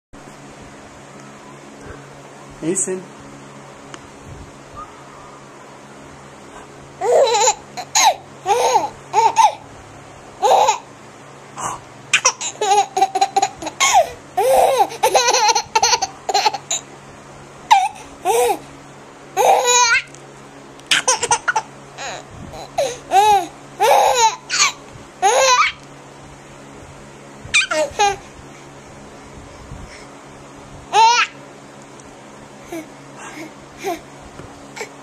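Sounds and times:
baby laughing and squealing: 0:07.0 - 0:09.6, 0:10.4 - 0:10.9, 0:12.2 - 0:16.9, 0:17.7 - 0:18.6, 0:19.4 - 0:20.1, 0:20.9 - 0:25.8, 0:27.5 - 0:28.3, 0:30.9 - 0:31.4.

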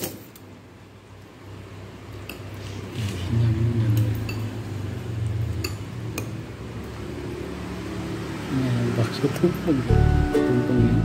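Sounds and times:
metal spoon clinking bowl: 0:04.0 - 0:04.6.

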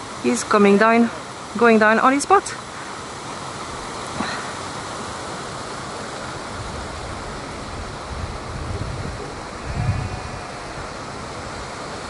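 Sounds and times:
wind buffeting microphone: 0:06.3 - 0:12.0.

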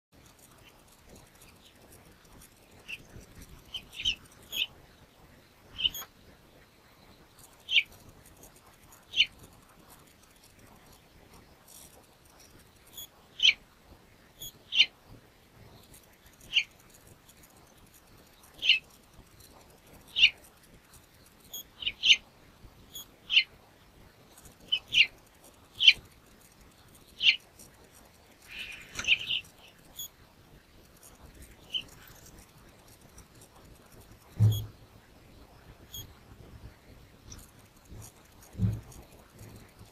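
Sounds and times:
finches chirping: 0:02.5 - 0:04.8, 0:05.7 - 0:06.1, 0:07.1 - 0:08.0, 0:09.0 - 0:09.6, 0:12.9 - 0:13.6, 0:14.4 - 0:14.9, 0:15.8 - 0:16.9, 0:18.0 - 0:20.5, 0:21.5 - 0:22.2, 0:22.9 - 0:23.6, 0:24.4 - 0:26.1, 0:26.9 - 0:27.5, 0:28.4 - 0:30.1, 0:31.4 - 0:32.2.

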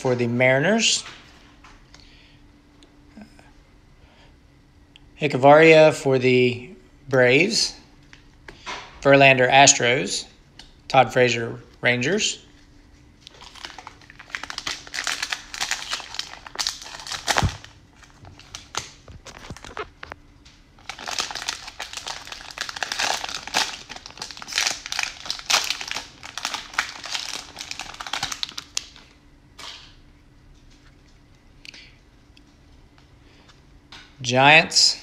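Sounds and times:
plastic wrapper tearing and crinkling: 0:13.2 - 0:20.2, 0:20.8 - 0:29.1.

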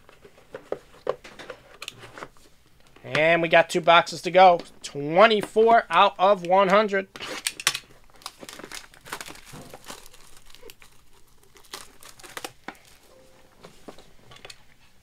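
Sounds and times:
plastic shrink-wrap crinkling: 0:07.4 - 0:13.1.

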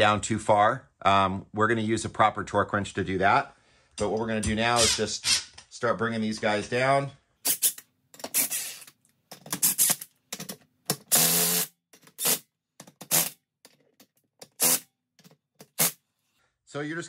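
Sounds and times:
cordless impact wrench bursts: 0:07.5 - 0:08.9, 0:09.6 - 0:10.1, 0:10.9 - 0:12.4, 0:13.0 - 0:13.4, 0:14.4 - 0:14.9, 0:15.7 - 0:16.0.

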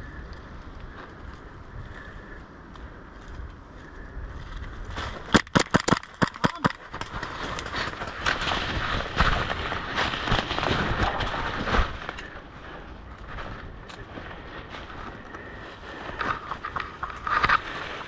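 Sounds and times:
scattered ticks: 0:00.0 - 0:04.8, 0:15.2 - 0:18.0
rough rustling noise: 0:00.0 - 0:05.4, 0:06.8 - 0:18.0.

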